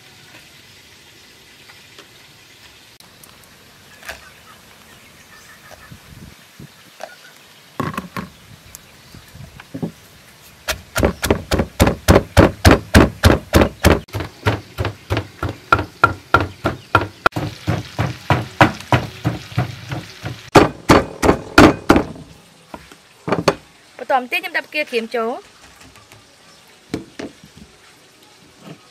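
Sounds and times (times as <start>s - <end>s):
wooden pestle pounding in mortar: 10.7s - 22.2s.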